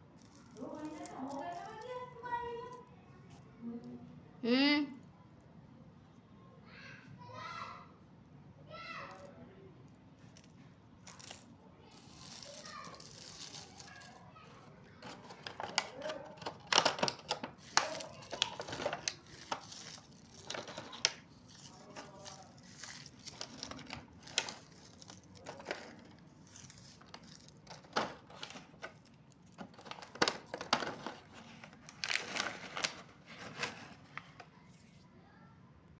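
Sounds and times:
cellophane crinkling: 0.0 - 2.9, 11.1 - 35.0
plastic box clicks: 15.0 - 19.8.

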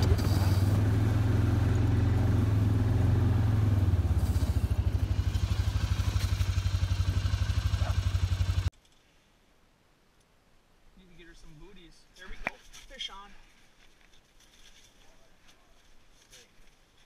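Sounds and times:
small engine idling: 0.0 - 8.7.

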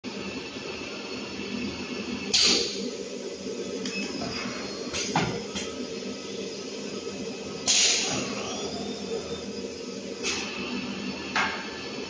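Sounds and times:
machine hum: 0.0 - 12.0
pneumatic air hiss: 7.6 - 8.9, 10.2 - 10.8.

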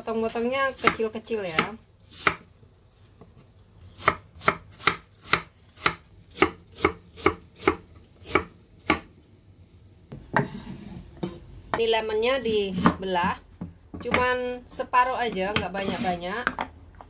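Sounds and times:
knife chopping on wooden board: 0.7 - 2.5, 4.0 - 9.1.

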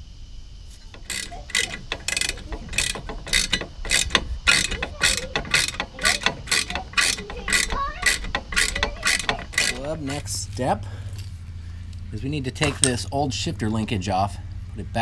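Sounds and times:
socket ratchet clicking: 0.9 - 10.3.

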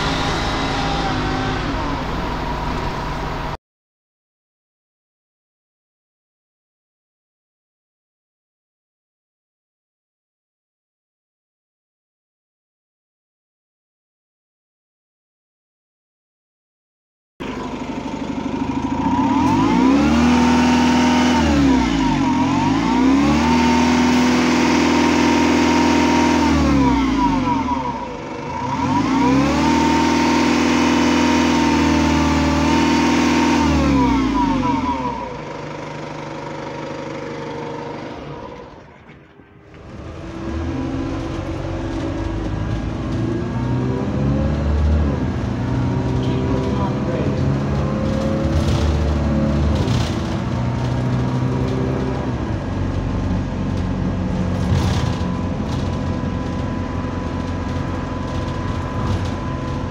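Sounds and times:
bus engine revving: 0.0 - 3.6, 17.4 - 59.9
steady high engine tone: 0.0 - 3.6, 17.4 - 41.2.

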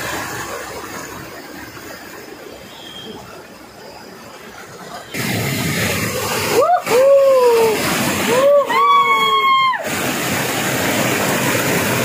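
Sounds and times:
water rushing over rocks: 0.0 - 12.0
man whooping: 6.5 - 9.9.

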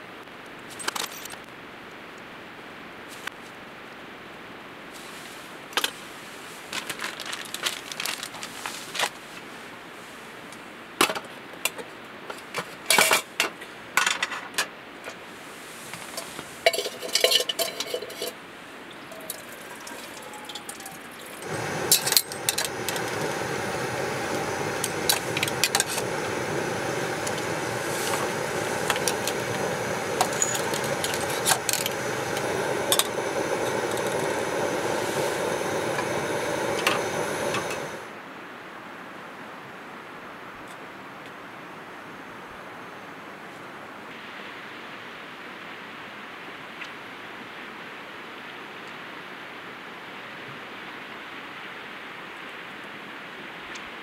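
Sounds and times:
dishes and utensils clinking: 16.2 - 18.4, 30.2 - 32.0
steady noise: 21.4 - 38.2.

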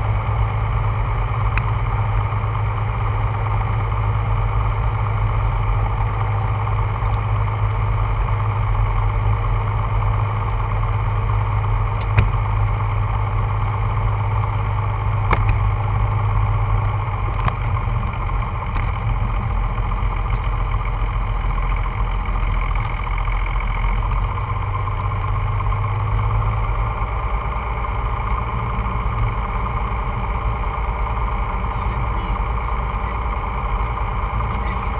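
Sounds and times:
aircraft engine droning: 0.0 - 34.9.

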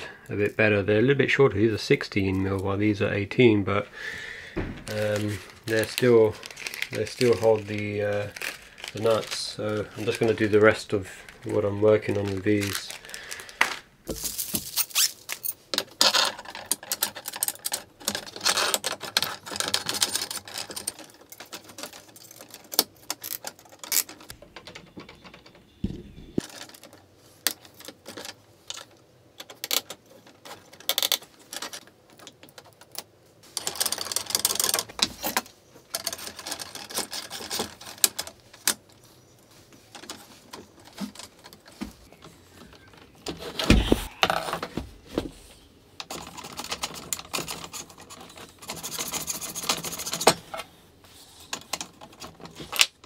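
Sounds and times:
screws and parts clicking and rattling: 4.8 - 25.6, 26.4 - 39.0, 46.0 - 50.7, 51.4 - 53.0.

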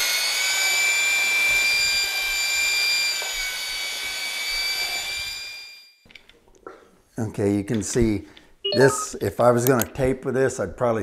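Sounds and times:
electric mixing drill motor whine: 0.0 - 6.0.

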